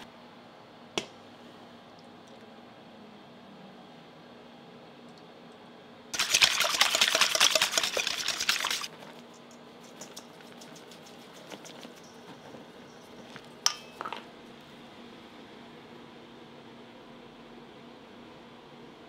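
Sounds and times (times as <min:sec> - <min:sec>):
whisk beating in metal bowl: 0:06.2 - 0:13.3.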